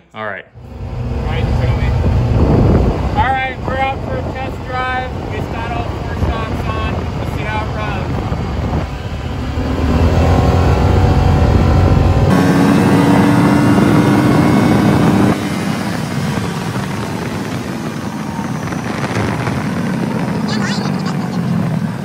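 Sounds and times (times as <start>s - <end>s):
utility vehicle engine droning: 0.6s - 22.0s.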